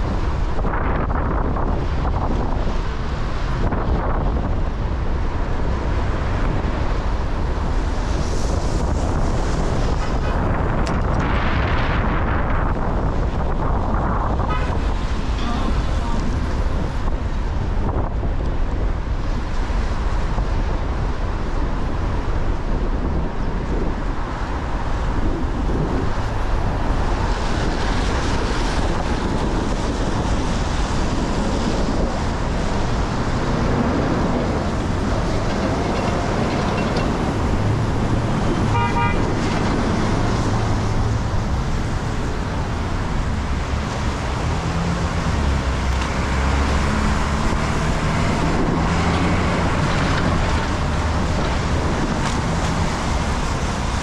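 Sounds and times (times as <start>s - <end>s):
traffic and road noise: 0.0s - 54.0s
car horn toot: 14.4s - 15.6s, 38.7s - 39.3s.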